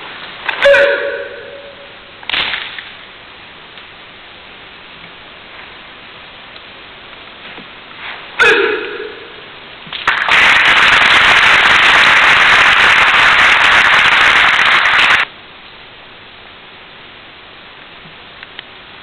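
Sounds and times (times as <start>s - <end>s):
audience applause: 10.0s - 15.3s.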